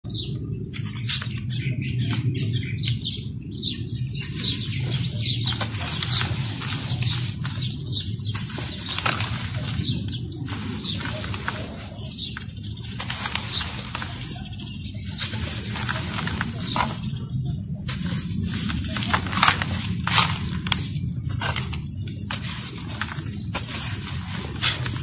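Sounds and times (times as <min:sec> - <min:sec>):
charcoal crunching by hand: 0:04.1 - 0:25.0.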